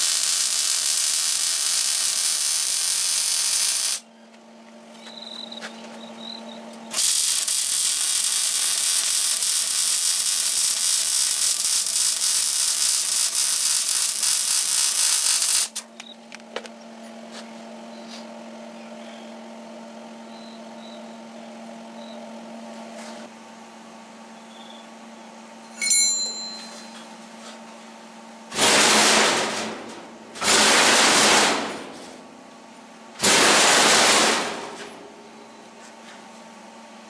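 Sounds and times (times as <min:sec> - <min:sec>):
welding arc crackling: 0:00.0 - 0:04.0, 0:06.9 - 0:15.8, 0:28.5 - 0:32.0.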